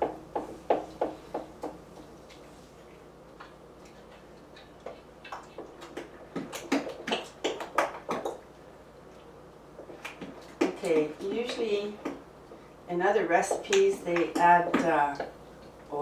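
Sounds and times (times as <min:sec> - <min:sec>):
dough mixing clicks and knocks: 0:03.3 - 0:12.6, 0:13.4 - 0:16.0.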